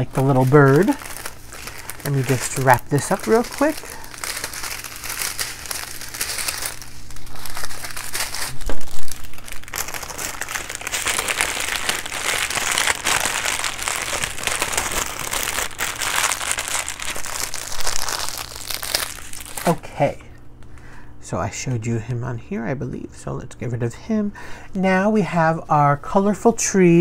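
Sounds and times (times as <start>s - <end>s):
plastic bags crinkling: 0.0s - 20.2s.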